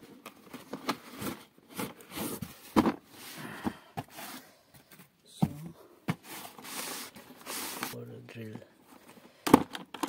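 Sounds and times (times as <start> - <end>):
cardboard sleeve rustling: 5.4 - 8.0
plastic case knocks and clicks: 9.4 - 10.0.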